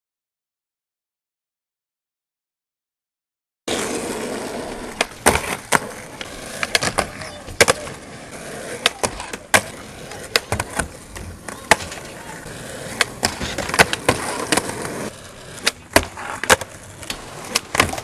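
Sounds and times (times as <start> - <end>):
skateboard clacks and knocks: 3.7 - 18.0
skateboards rolling on asphalt: 3.7 - 18.0.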